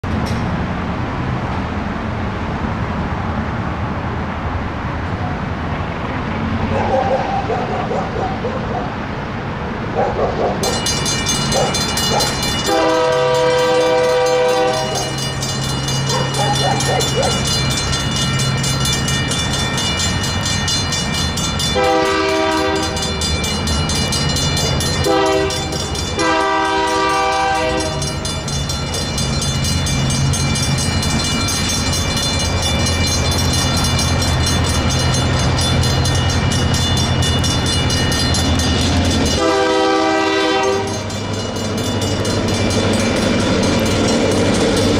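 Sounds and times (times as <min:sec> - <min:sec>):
crossing bells ringing: 0:10.4 - 0:44.9
locomotive horn blasts: 0:12.6 - 0:15.2, 0:21.8 - 0:23.2, 0:25.0 - 0:28.2, 0:39.4 - 0:41.1.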